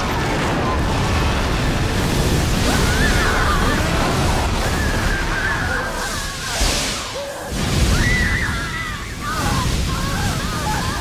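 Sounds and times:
fire roaring: 0:00.0 - 0:11.0.

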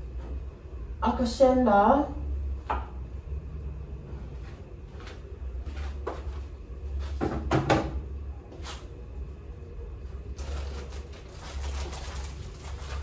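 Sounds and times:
steady low hum: 0:00.0 - 0:13.0
kitchen items knocking: 0:07.2 - 0:08.0.

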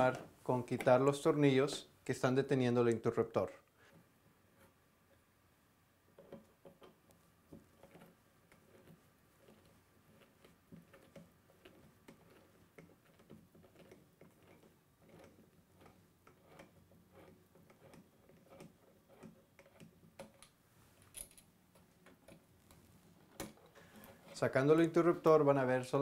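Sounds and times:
small clicks of unscrewing screws: 0:07.8 - 0:24.4.

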